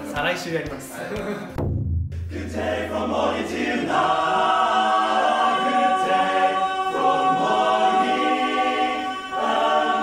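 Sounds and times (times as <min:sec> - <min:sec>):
men singing a cappella in harmony: 0:02.4 - 0:10.0.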